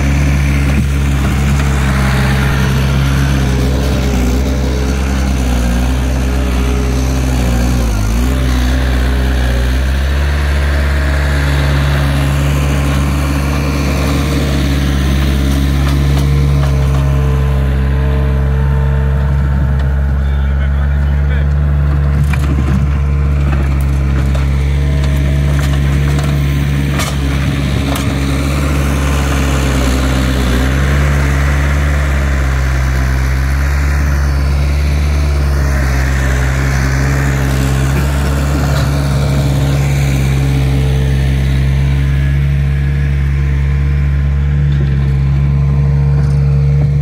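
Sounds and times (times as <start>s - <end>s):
diesel engine running: 0.0s - 47.0s.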